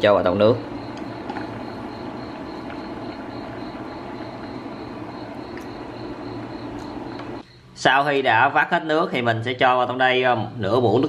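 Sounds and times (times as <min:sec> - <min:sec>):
high-pitched whine: 0:00.0 - 0:08.0
induction cooktop humming: 0:00.0 - 0:11.0.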